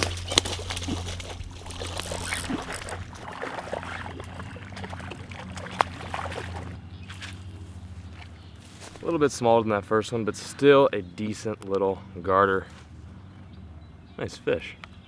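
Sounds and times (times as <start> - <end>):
water splashing: 0.0 - 7.4
steady low hum: 0.0 - 14.2.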